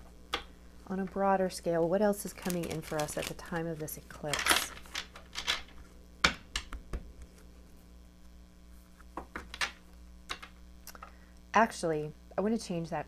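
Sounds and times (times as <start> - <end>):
low mains hum: 0.0 - 13.0
cards shuffling and slapping: 2.2 - 7.5.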